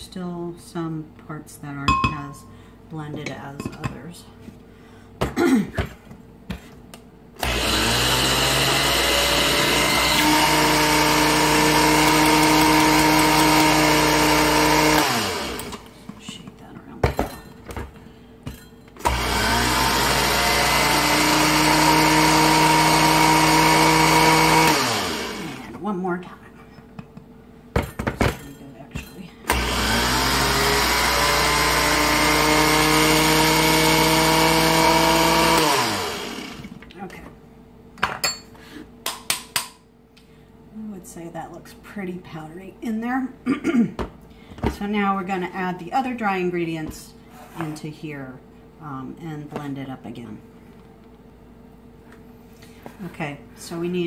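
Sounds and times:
blender grinding: 7.4s - 16.0s, 19.0s - 25.8s, 29.5s - 36.9s.

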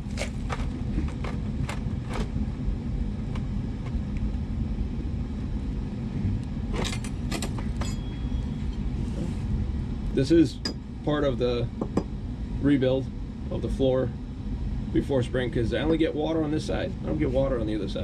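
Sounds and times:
low rumble: 0.0s - 7.0s.

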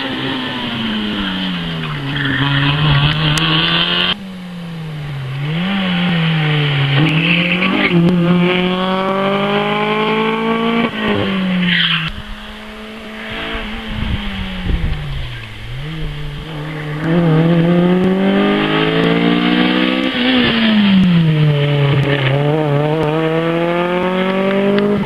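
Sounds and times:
rally car engine revving: 0.0s - 25.0s
tyre squeal: 0.5s - 3.6s.

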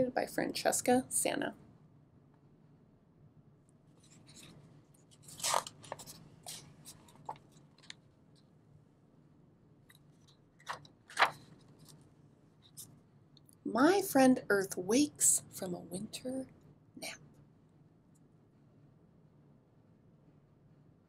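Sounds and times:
faint low hum: 0.0s - 21.0s
book pages turning: 4.0s - 8.1s, 9.9s - 12.9s.

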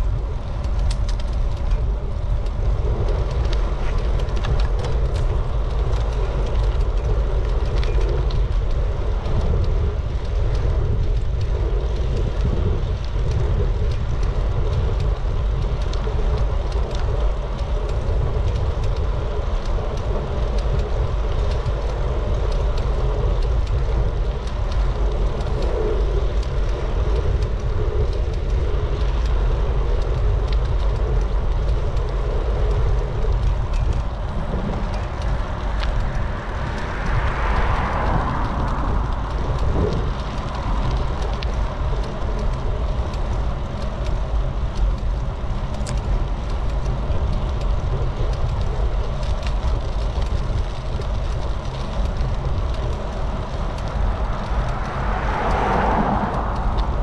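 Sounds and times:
wind rumbling on microphone: 0.0s - 57.0s
car passing: 33.9s - 43.5s, 51.4s - 57.0s.

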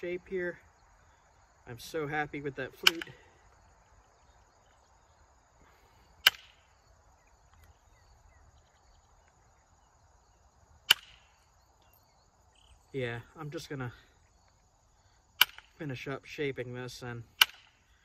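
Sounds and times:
antler striking flint: 2.8s - 3.3s, 6.2s - 6.7s, 10.8s - 11.5s, 15.4s - 15.8s, 17.3s - 17.9s.

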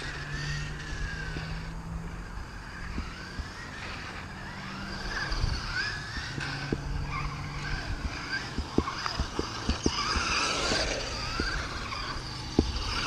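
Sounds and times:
electric motor whining: 0.0s - 13.0s
toy truck knocking on pavement: 8.4s - 11.8s.

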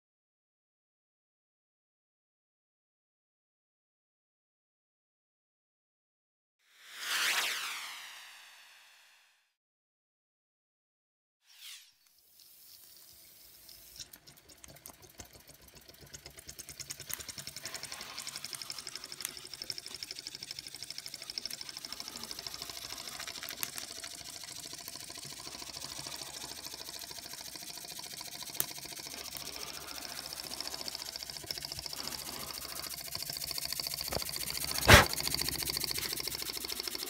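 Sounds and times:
steam engine clicking beat: 14.2s - 37.0s
steam hiss: 34.1s - 36.8s.

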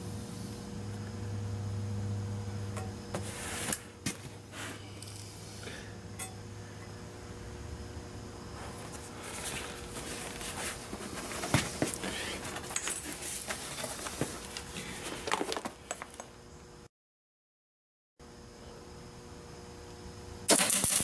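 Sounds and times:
faint steady hum: 0.0s - 16.9s, 18.2s - 21.0s
gloves rustling: 8.6s - 16.3s.

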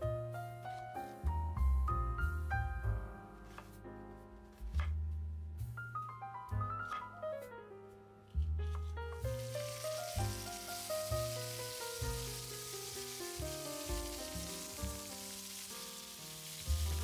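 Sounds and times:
background music: 0.0s - 17.0s
meat sizzling in hot oil: 9.2s - 17.0s.

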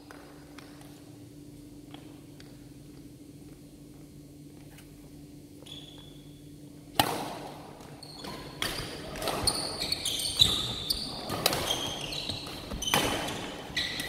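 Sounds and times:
steady low hum: 0.0s - 9.4s
sneaker squeaks on floor: 5.6s - 6.5s, 7.8s - 14.0s
racket hitting shuttlecock: 6.9s - 7.7s, 10.6s - 14.0s.

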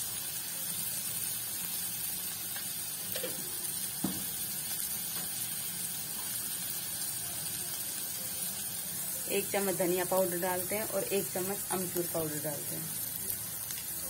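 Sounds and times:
vegetables sizzling in hot oil: 0.0s - 14.0s.

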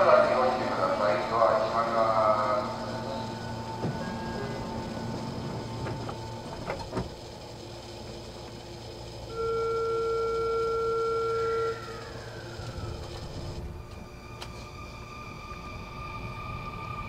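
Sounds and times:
train car background noise: 0.0s - 17.0s
electronic warning buzzer tone: 9.2s - 12.9s.

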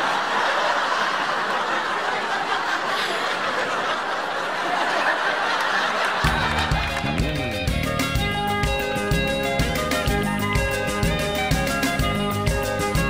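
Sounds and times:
audience laughing: 0.0s - 7.9s.

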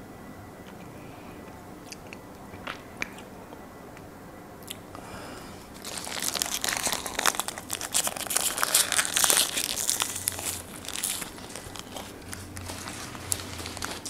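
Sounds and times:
paper wrapper crinkling: 5.7s - 14.0s.

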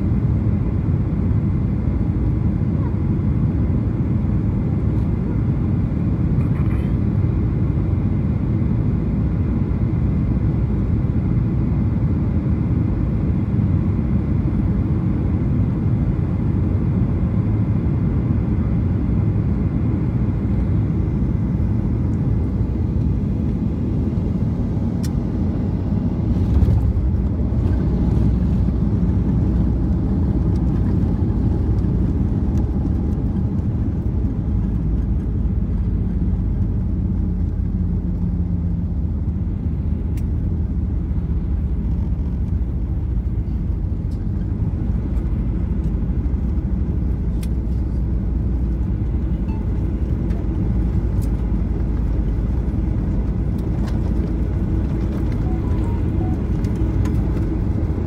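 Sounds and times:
airplane cabin rumble: 0.0s - 58.0s.

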